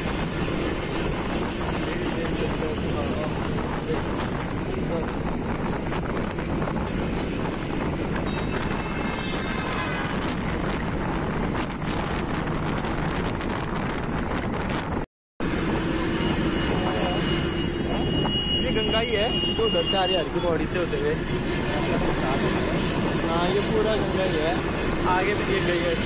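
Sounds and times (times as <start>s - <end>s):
wind rushing at open window: 0.0s - 19.1s
bus engine and road noise: 0.0s - 26.0s.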